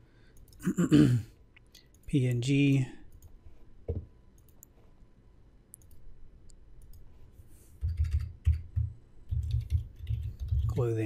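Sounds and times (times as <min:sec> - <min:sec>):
typing on computer keyboard: 0:07.8 - 0:10.9.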